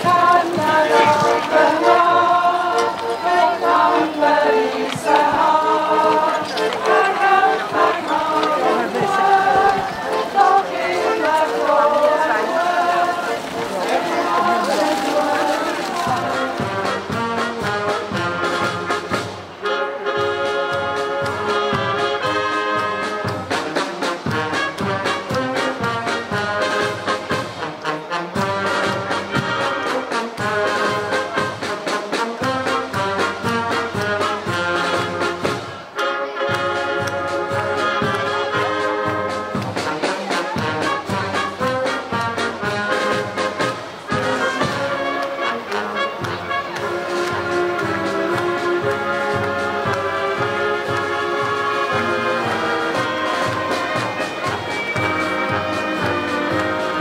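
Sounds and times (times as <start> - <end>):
percussion beat: 0.0 - 19.5, 36.5 - 57.0
brass band playing: 0.0 - 57.0.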